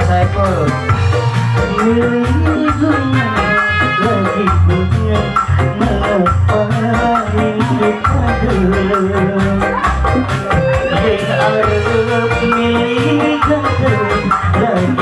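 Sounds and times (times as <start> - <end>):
melody line: 0.0 - 14.8
electric guitar: 0.0 - 15.0
keyboard: 0.0 - 15.0
hand drums beating: 7.1 - 14.4.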